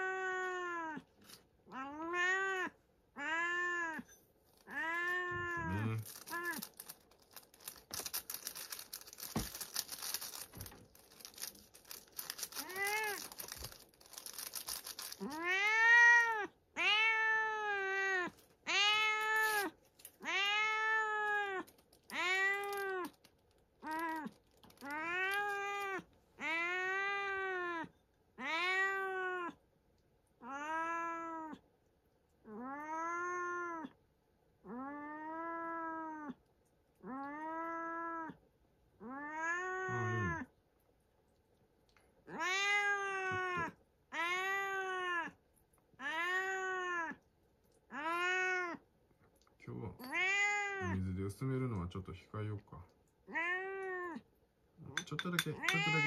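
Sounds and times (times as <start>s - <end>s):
cat meowing: 0.0s - 1.1s, 1.7s - 6.7s, 12.5s - 13.4s, 15.1s - 23.2s, 23.8s - 29.6s, 30.4s - 31.6s, 32.5s - 34.0s, 34.6s - 36.4s, 37.0s - 38.4s, 39.0s - 40.5s, 42.3s - 45.4s, 46.0s - 47.2s, 47.9s - 48.8s, 50.0s - 51.0s, 53.3s - 54.2s, 55.4s - 56.0s
rustling and shuffling: 4.4s - 15.4s.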